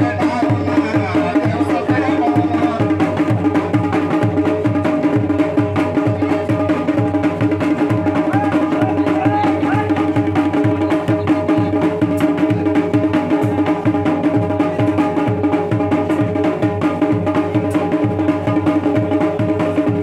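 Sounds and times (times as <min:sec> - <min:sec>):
fast drumbeat: 0:00.0 - 0:20.0.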